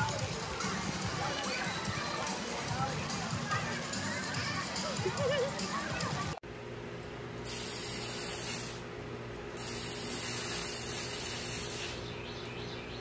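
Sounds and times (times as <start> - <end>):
hose nozzle spraying water: 7.4 - 8.9, 9.6 - 12.1.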